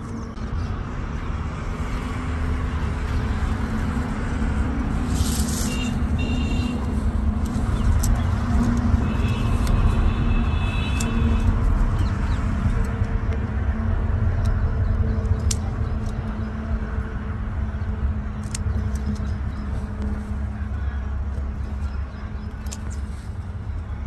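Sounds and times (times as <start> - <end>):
low mechanical drone: 0.0 - 24.0
scissors snipping: 7.3 - 13.1.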